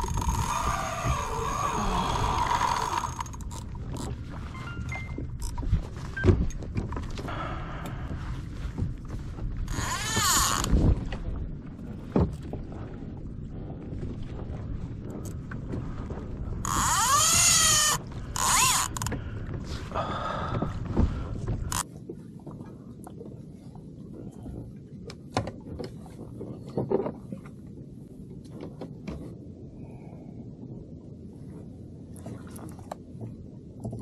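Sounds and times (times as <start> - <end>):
fishing reel drag buzzing: 0.0 - 3.6, 16.7 - 19.0.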